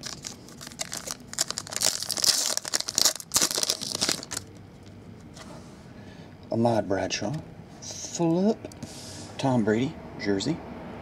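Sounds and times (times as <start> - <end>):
foil wrapper tearing and crinkling: 0.0 - 4.5.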